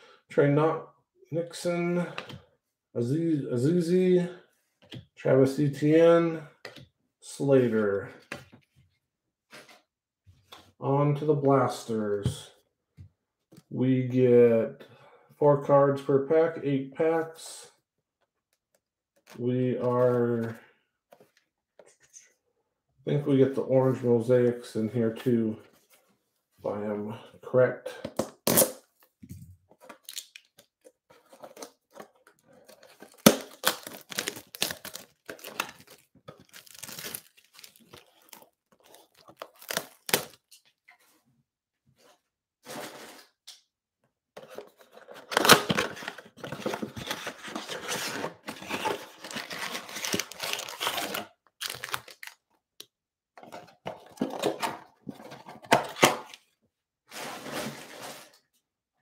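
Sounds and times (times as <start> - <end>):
cardboard box rustling: 31.2 - 40.4, 44.4 - 52.2
plastic shrink wrap crinkling: 32.6 - 40.6, 48.8 - 52.4.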